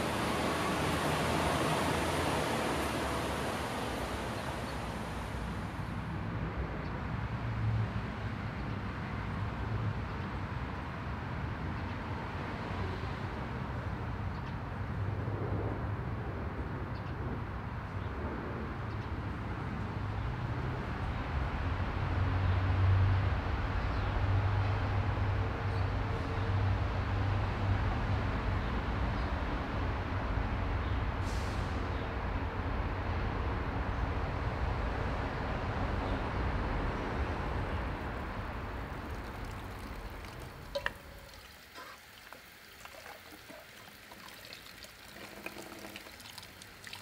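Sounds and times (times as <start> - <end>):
rain hissing: 0.0 - 6.1, 37.2 - 47.0
distant traffic rumble: 0.0 - 47.0.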